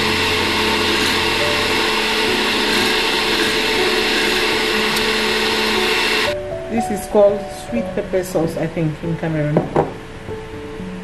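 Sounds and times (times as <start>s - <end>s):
blender motor running: 0.0s - 6.4s.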